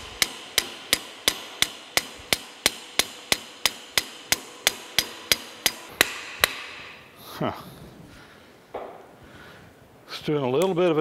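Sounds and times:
hammer striking metal pliers: 0.0s - 7.0s.

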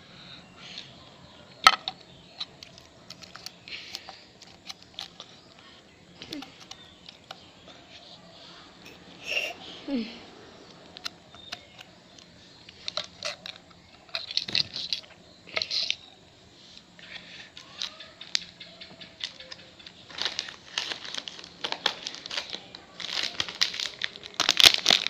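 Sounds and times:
plastic wrapper crinkling: 19.2s - 25.0s.

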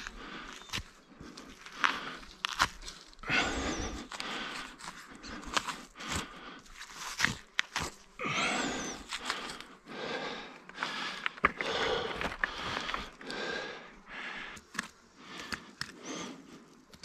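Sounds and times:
knife cutting hide: 0.0s - 9.4s
crunching and tearing: 0.0s - 9.8s, 10.7s - 13.6s.

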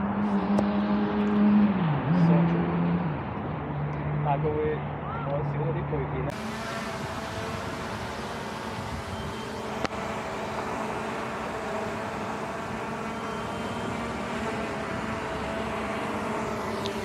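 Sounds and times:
road traffic noise: 0.0s - 17.0s
drone propellers humming: 6.1s - 17.0s.

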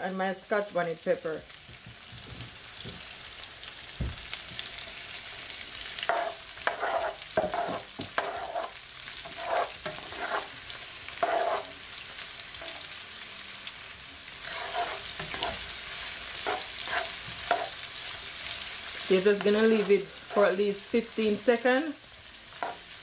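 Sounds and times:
vegetables sizzling in oil: 0.0s - 23.0s
spatula stirring in a pan: 5.8s - 13.0s, 14.3s - 20.6s, 22.3s - 23.0s.

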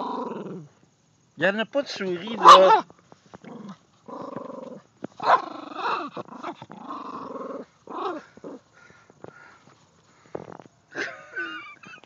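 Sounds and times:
dog growling: 0.0s - 0.7s, 3.4s - 8.8s.

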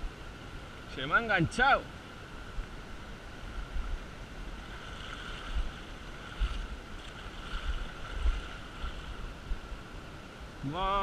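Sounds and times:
river running over gravel: 0.9s - 11.0s
wind buffeting microphone: 3.6s - 9.7s.

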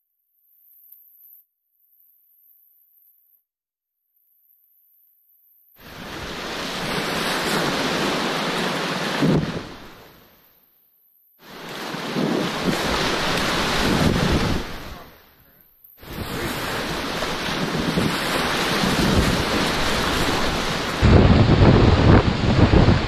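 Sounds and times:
whitewater rapids rushing: 6.0s - 9.9s, 11.5s - 15.2s, 16.0s - 23.0s
wind buffeting microphone: 9.0s - 9.9s, 11.7s - 15.1s, 16.0s - 23.0s.

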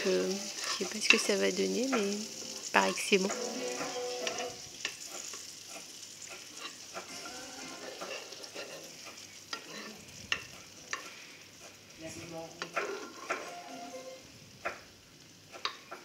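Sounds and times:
meat sizzling in a pan: 0.0s - 16.0s
utensil scraping and knocking pan: 6.3s - 11.1s, 12.6s - 13.6s.

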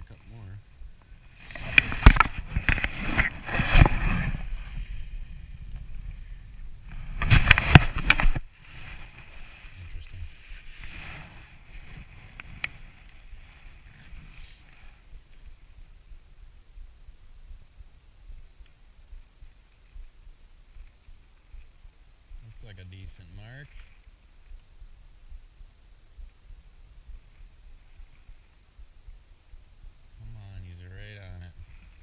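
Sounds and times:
fabric rubbing on microphone: 1.2s - 6.2s, 6.8s - 15.6s.

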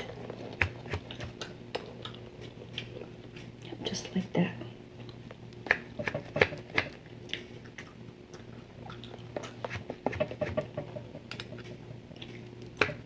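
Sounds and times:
steady low hum: 0.0s - 13.0s
gum chewing clicks and smacks: 5.0s - 9.6s.

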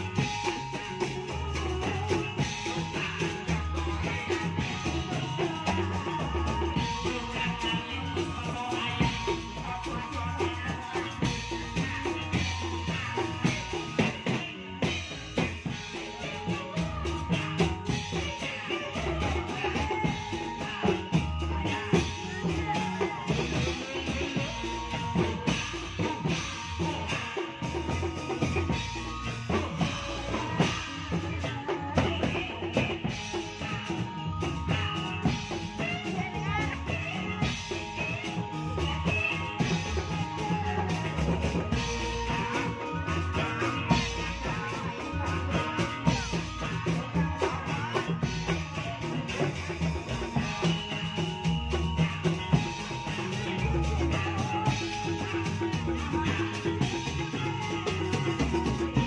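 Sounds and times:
held melody line: 0.0s - 59.0s
ringing struck pitched percussion: 0.0s - 59.0s
steady drum rhythm: 0.0s - 59.0s.

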